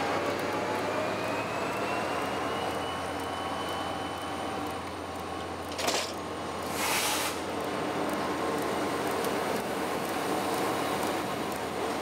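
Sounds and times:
train wheels rumbling and rattling: 0.0s - 12.0s
short hiss: 6.7s - 7.4s.

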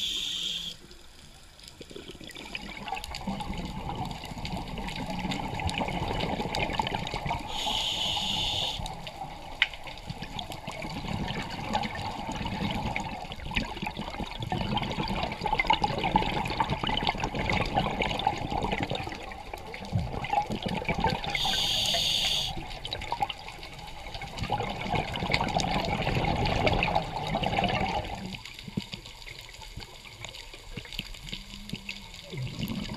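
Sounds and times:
short high buzzy hiss: 0.0s - 0.8s, 7.5s - 8.9s, 21.4s - 22.5s
underwater bubbles crackling: 0.0s - 32.9s.

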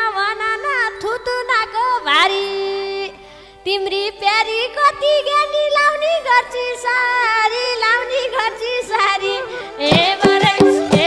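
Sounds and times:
held keyboard notes: 9.3s - 11.0s
ornamented melody line: 9.8s - 11.0s
hand drum strokes: 9.9s - 11.0s.

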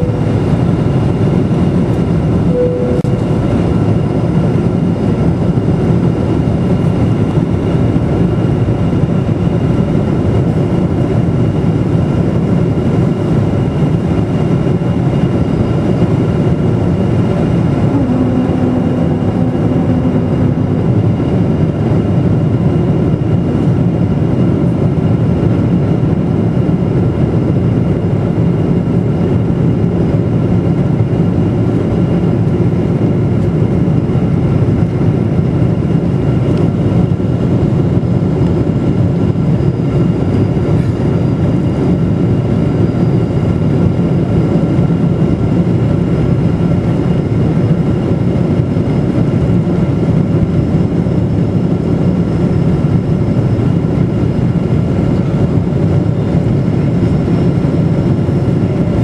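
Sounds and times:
low steady tone: 0.0s - 1.0s, 2.4s - 3.9s, 17.4s - 22.2s
jet engine roar: 0.0s - 59.0s.

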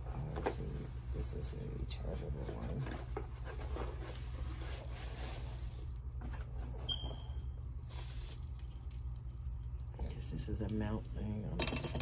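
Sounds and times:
steady low hum: 0.0s - 12.0s
plastic packaging rustling: 3.0s - 6.2s, 7.7s - 9.4s.

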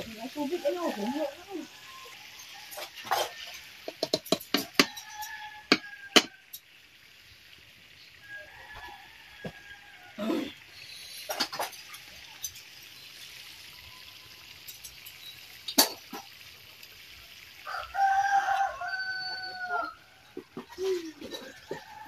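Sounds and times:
rooster crowing: 0.3s - 6.6s, 8.2s - 10.6s, 17.6s - 20.4s, 21.3s - 22.0s.

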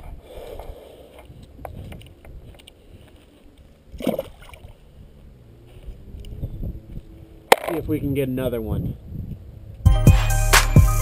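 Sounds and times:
wind rumble on microphone: 0.0s - 9.9s
fish splashing into water: 4.0s - 4.8s.

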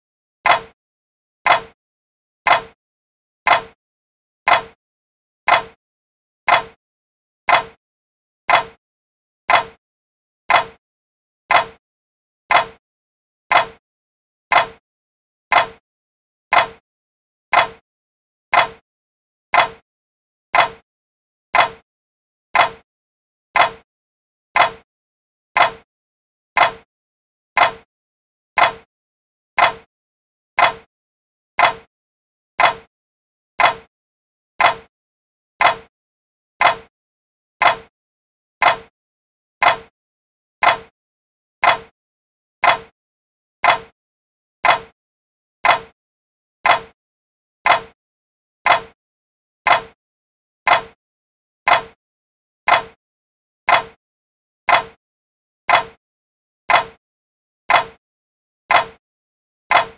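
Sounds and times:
clock ticking: 0.4s - 0.8s, 1.4s - 1.8s, 2.5s - 2.8s, 3.5s - 3.8s, 4.5s - 4.8s, 5.5s - 5.8s, 6.5s - 6.8s, 7.5s - 7.8s, 8.5s - 8.8s, 9.5s - 9.8s, 10.5s - 10.8s, 11.5s - 11.8s, 12.5s - 12.8s, 13.5s - 13.8s, 14.5s - 14.8s, 15.5s - 15.8s, 16.5s - 16.8s, 17.5s - 17.8s, 18.5s - 18.8s, 19.5s - 19.8s, 20.6s - 20.8s, 21.6s - 21.8s, 22.6s - 22.8s, 23.6s - 23.8s, 24.6s - 24.8s, 25.6s - 25.9s, 26.6s - 26.9s, 27.6s - 27.9s, 28.6s - 28.9s, 29.6s - 29.9s, 30.6s - 30.9s, 31.6s - 31.9s, 32.6s - 32.9s, 33.6s - 33.9s, 34.6s - 34.9s, 35.6s - 35.9s, 36.6s - 36.9s, 37.6s - 37.9s, 38.6s - 38.9s, 39.6s - 39.9s, 40.6s - 40.9s, 41.6s - 41.9s, 42.6s - 42.9s, 43.6s - 44.0s, 44.6s - 45.0s, 45.6s - 46.0s, 46.6s - 47.0s, 47.6s - 48.0s, 48.7s - 49.0s, 49.7s - 50.0s, 50.7s - 51.0s, 51.7s - 52.0s, 52.7s - 53.0s, 53.7s - 54.0s, 54.7s - 55.0s, 55.7s - 56.0s, 56.7s - 57.0s, 57.7s - 58.0s, 58.7s - 59.0s.

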